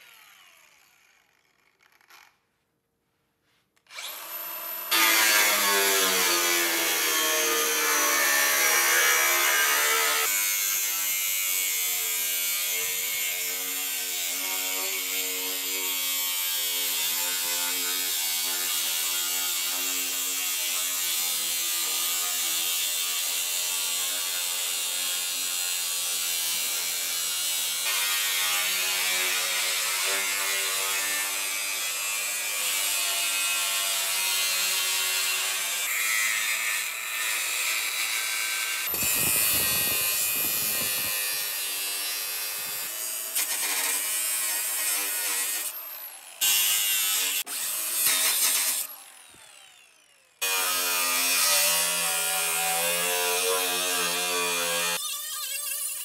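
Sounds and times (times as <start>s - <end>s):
angle grinder motor whine: 3.9s - 6.4s, 38.7s - 41.6s, 48.9s - 50.5s.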